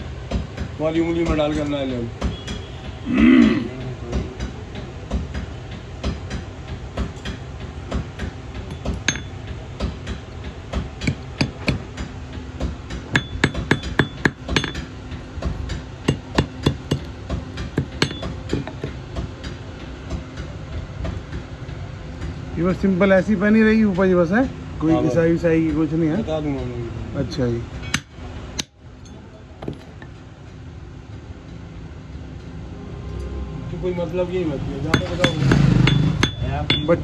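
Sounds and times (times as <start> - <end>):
hammer tapping metal on anvil: 5.2 - 20.5, 27.8 - 30.2, 34.8 - 37.0.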